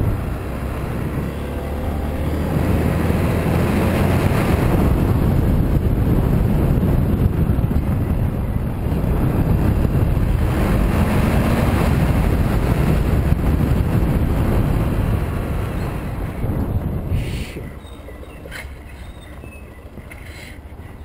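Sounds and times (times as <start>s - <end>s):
motorcycle engine: 0.0s - 21.0s
road noise: 0.0s - 21.0s
wind buffeting microphone: 0.0s - 21.0s.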